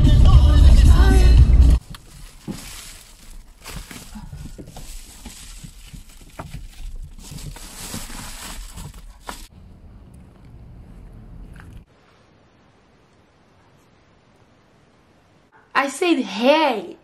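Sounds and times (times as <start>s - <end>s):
foil sun shade crinkling: 1.8s - 9.5s.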